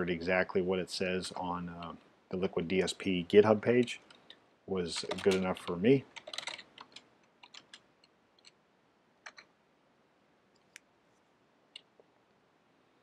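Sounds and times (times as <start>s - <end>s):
keyboard keystrokes: 5.0s - 7.8s.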